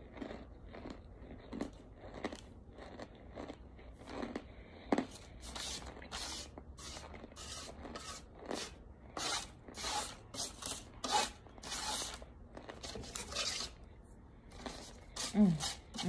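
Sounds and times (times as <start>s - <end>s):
spoon scraping cornstarch: 5.1s - 13.9s, 14.5s - 16.0s.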